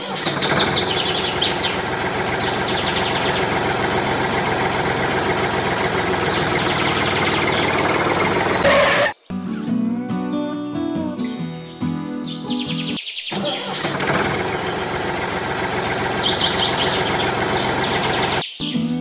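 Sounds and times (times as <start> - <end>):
diesel tractor engine running: 0.0 - 9.2, 13.3 - 18.4
birds chirping: 0.0 - 19.0.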